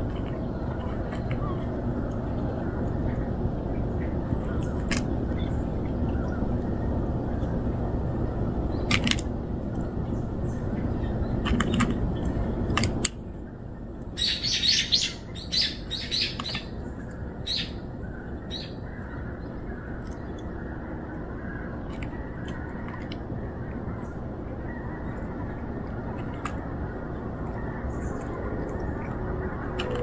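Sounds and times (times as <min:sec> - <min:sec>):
low outdoor rumble: 0:00.0 - 0:30.0
small birds chirping: 0:09.8 - 0:30.0.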